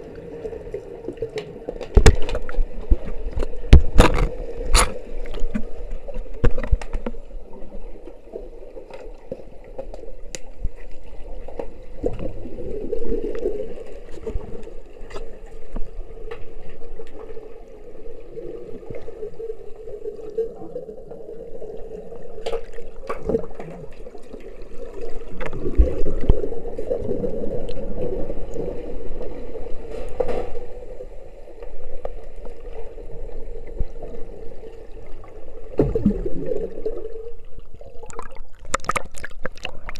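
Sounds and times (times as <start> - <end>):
muffled underwater rushing: 0.0 - 39.9.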